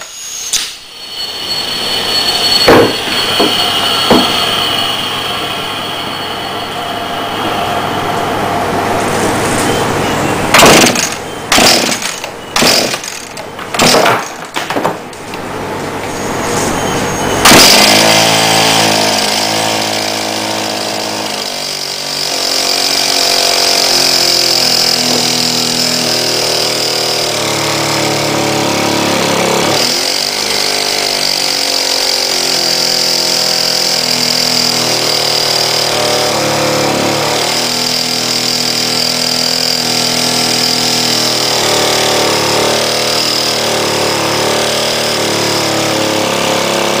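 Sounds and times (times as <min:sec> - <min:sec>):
small engine running unevenly: 0:17.4 - 0:47.0.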